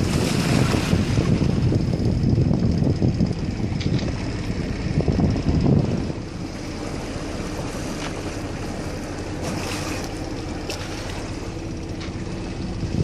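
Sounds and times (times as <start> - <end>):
wind on microphone: 0.0 - 6.9, 12.6 - 13.0
steady low hum: 0.0 - 13.0
water rushing along hull: 0.0 - 13.0.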